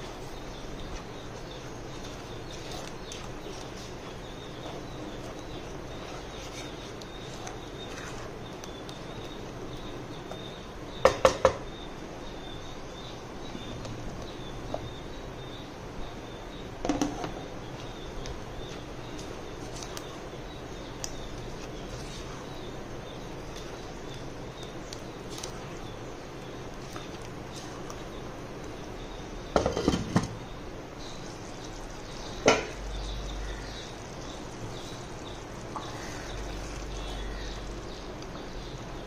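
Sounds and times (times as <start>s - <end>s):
spatula scraping paste in pot: 0.0s - 9.0s.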